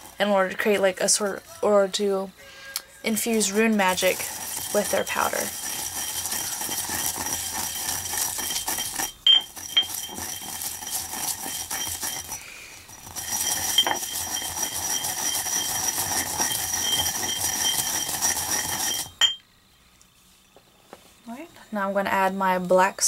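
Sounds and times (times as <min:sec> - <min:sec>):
pestle grinding in stone mortar: 0:03.1 - 0:19.4
pestle clinking against bowl: 0:03.3 - 0:12.4, 0:13.0 - 0:19.4.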